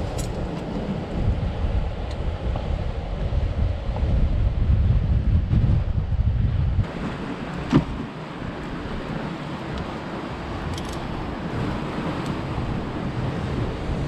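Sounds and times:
sea surf on rocks: 0:00.0 - 0:14.0
wind: 0:00.0 - 0:14.0
climbing gear clinking: 0:10.7 - 0:11.0.

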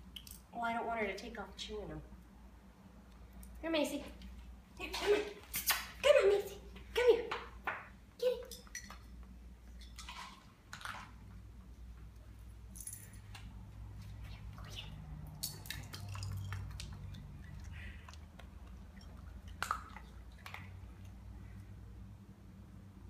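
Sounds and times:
low steady hum: 0:00.0 - 0:23.0.

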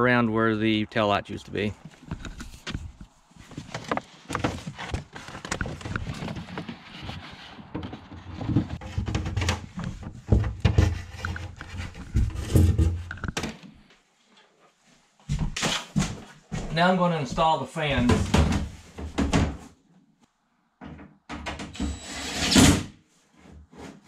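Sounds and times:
scrapes and knocks of handling: 0:01.8 - 0:13.4.

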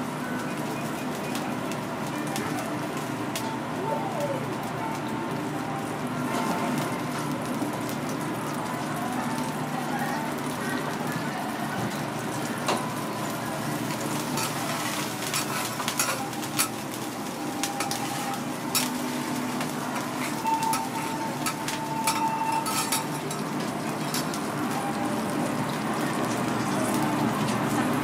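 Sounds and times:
griddle sizzling: 0:00.0 - 0:28.0
utensils clinking on glass dish: 0:20.2 - 0:24.4.

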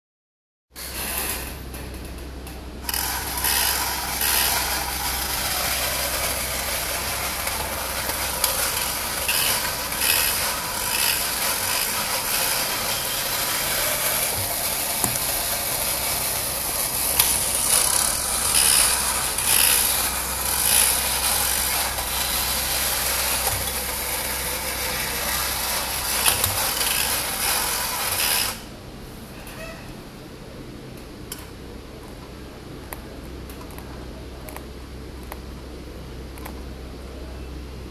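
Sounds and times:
toy motor whirring: 0:02.8 - 0:28.6.

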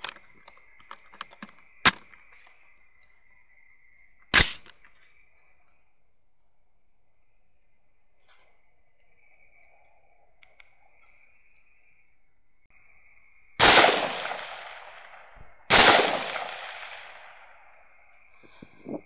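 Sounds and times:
rifle shots with echo: 0:13.6 - 0:17.6.

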